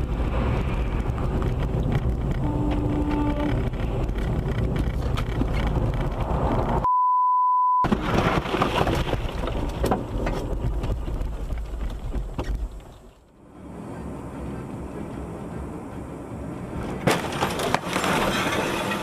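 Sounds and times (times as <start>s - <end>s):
car road and wind noise: 0.0s - 6.9s, 7.9s - 19.0s
censor bleep: 6.8s - 7.8s.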